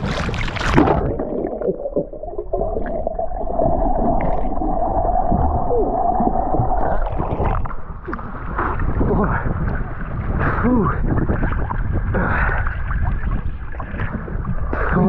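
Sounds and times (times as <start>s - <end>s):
swimmer breaking water surface: 0.0s - 3.0s.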